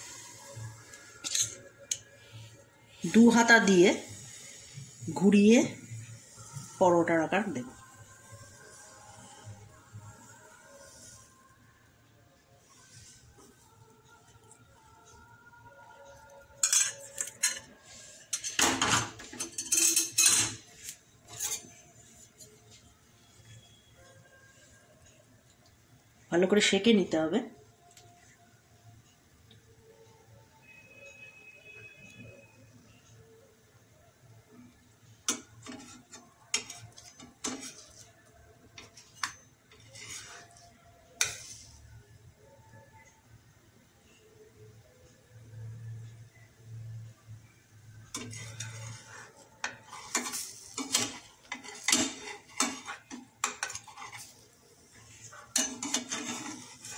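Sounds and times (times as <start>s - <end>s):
spatula scraping frying pan: 0.0s - 2.1s, 3.0s - 11.3s, 16.6s - 22.8s, 35.3s - 41.8s, 48.1s - 56.9s
steel ladle clattering on kitchenware: 16.6s - 17.7s, 18.3s - 20.7s, 49.6s - 54.3s, 55.5s - 56.7s.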